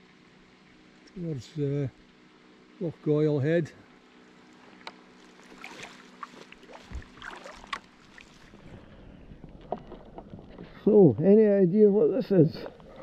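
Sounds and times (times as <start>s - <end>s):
paddle splashes and drips: 4.4s - 10.2s
dull thump: 6.9s - 7.2s.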